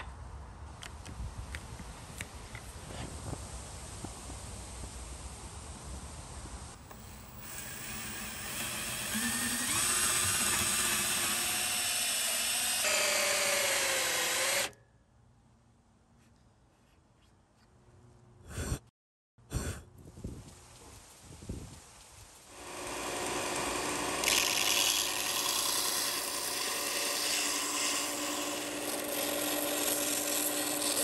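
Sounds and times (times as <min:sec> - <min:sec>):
drill motor whine: 0:06.8 - 0:14.8, 0:22.5 - 0:31.0
hole saw rasping through wood: 0:06.9 - 0:14.7, 0:22.5 - 0:31.0.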